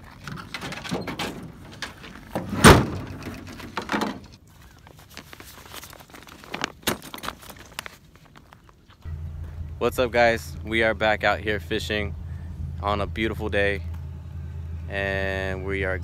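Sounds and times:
tailgate dropping open with clunk: 0.2s - 4.3s
tailgate knocks and rattles: 0.3s - 4.3s.

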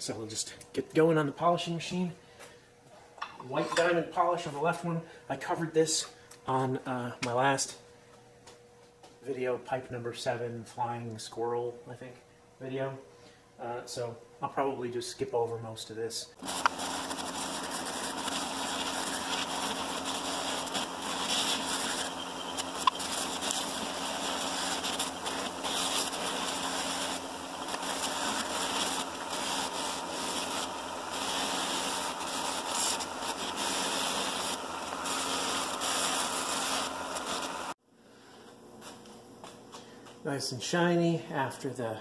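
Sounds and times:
buffing machine whirring hum: 16.4s - 37.8s.

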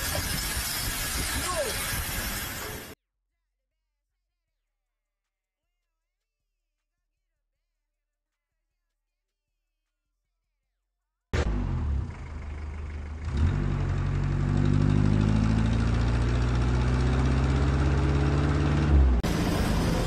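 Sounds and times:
wheels spinning in sand: 0.0s - 3.0s
diesel truck engine revving: 11.4s - 20.0s
different engine noise: 11.4s - 20.0s.

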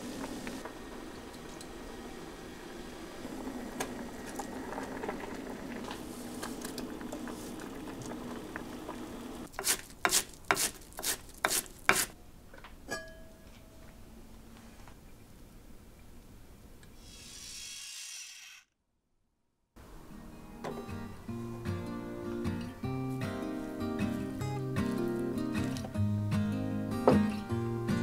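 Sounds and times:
soup bubbling in a pot: 2.6s - 10.7s
pot lid clink: 12.9s - 13.3s.

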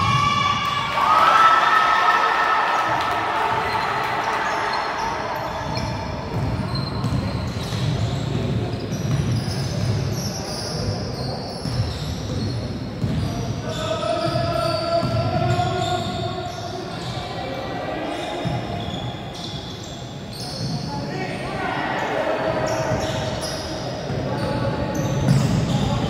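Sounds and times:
basketball bouncing on wooden floor: 5.7s - 10.0s.

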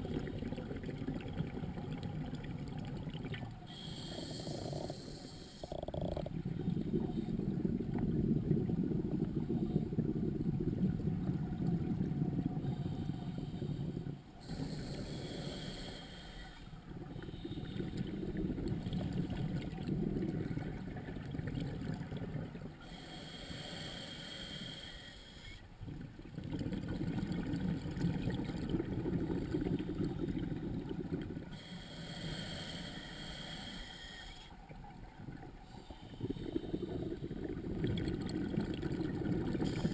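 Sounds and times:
scuba regulator breathing underwater: 3.7s - 10.2s, 12.6s - 19.1s, 22.8s - 25.6s, 31.5s - 34.6s, 35.6s - 38.0s, 39.2s - 39.9s.

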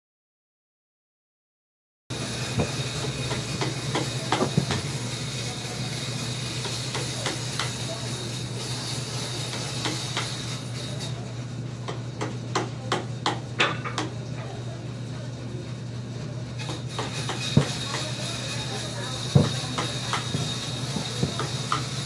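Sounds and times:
workshop hum and hiss: 2.1s - 22.0s.

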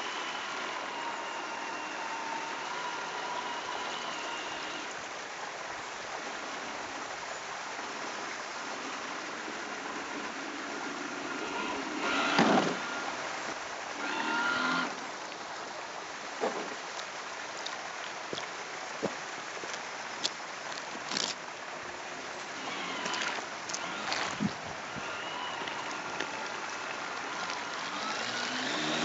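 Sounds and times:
model boat motor whine: 0.0s - 5.2s, 7.9s - 15.1s, 22.0s - 29.0s
water noise: 0.0s - 29.0s.

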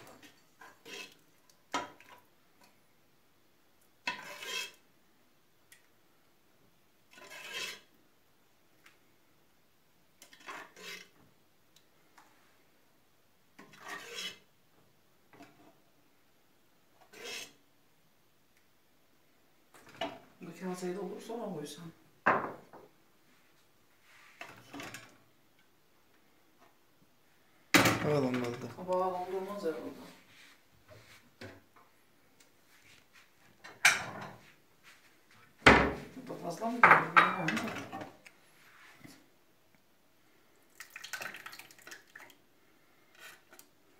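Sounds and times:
metal ladle scraping a pot: 0.2s - 1.2s, 4.1s - 4.8s, 7.1s - 7.9s, 10.2s - 11.2s, 13.6s - 14.5s, 17.0s - 17.6s
kitchenware clatter: 22.2s - 22.8s, 33.6s - 34.4s, 36.8s - 38.2s.

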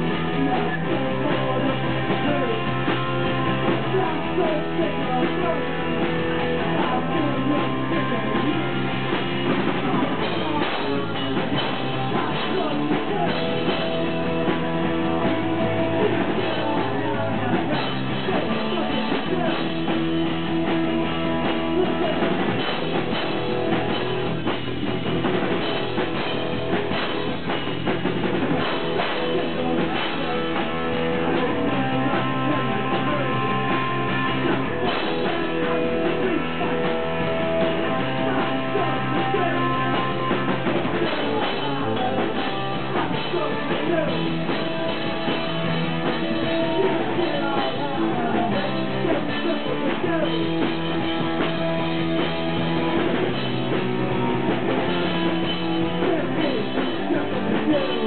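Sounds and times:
man singing: 0.0s - 24.6s, 28.6s - 58.0s
drum kit: 0.0s - 58.0s
electric guitar: 0.0s - 58.0s.

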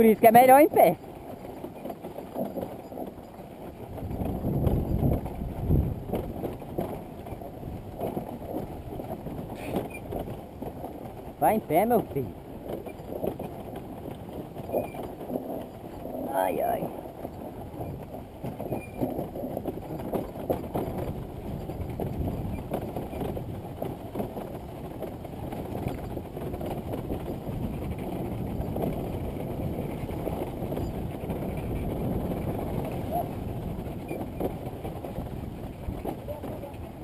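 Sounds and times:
bike knocking and rattling: 0.0s - 37.0s.

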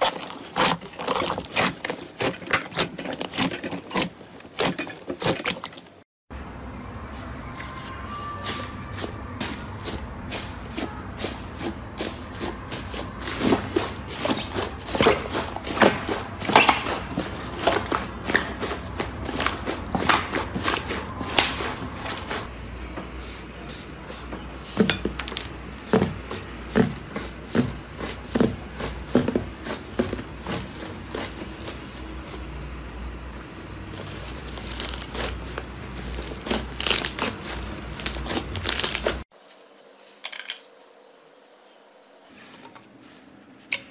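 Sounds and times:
slime crackling and popping: 34.0s - 39.2s.

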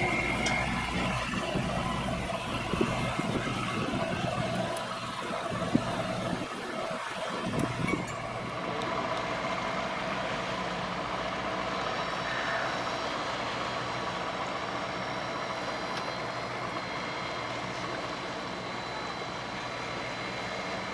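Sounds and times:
boat engine droning: 0.0s - 20.9s.

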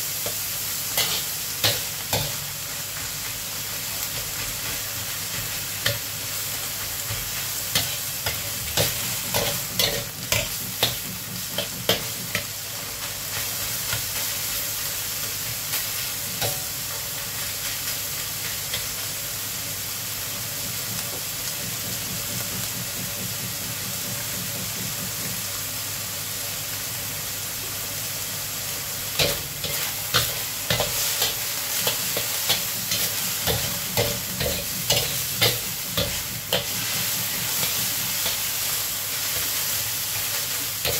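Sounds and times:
meat sizzling in oil: 0.0s - 40.9s
metal spatula scraping a wok: 29.2s - 40.9s.

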